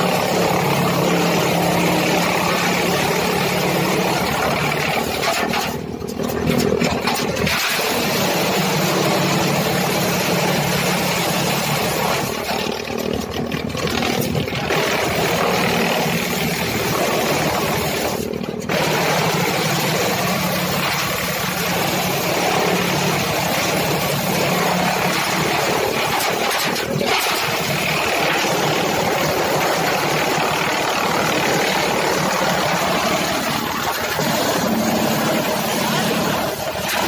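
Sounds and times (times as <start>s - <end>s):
chaff cutter mechanical noise: 0.0s - 37.0s
tractor engine running: 0.0s - 37.0s.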